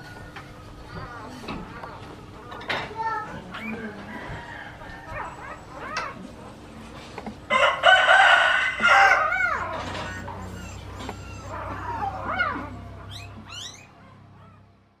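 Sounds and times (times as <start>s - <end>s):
puppies whimpering: 3.4s - 6.6s, 8.9s - 14.8s
rooster crowing: 4.0s - 5.4s, 7.5s - 10.3s.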